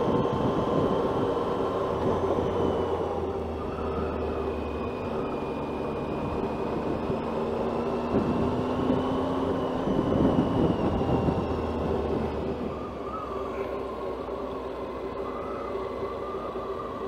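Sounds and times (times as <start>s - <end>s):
road noise: 0.0s - 17.0s
rushing wind: 0.0s - 17.0s.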